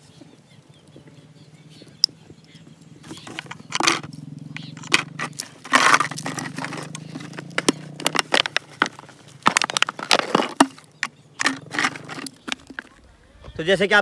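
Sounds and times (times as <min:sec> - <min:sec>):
plastic lighters clicking and rattling: 0:02.0 - 0:12.9.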